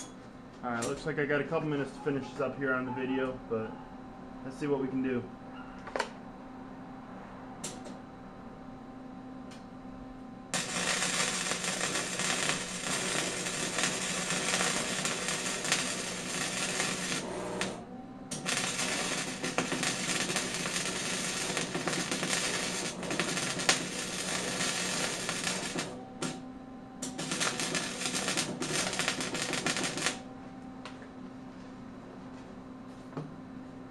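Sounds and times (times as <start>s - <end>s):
faint steady hum: 0.0s - 33.9s
arc welding crackle: 10.5s - 26.4s, 27.0s - 30.3s.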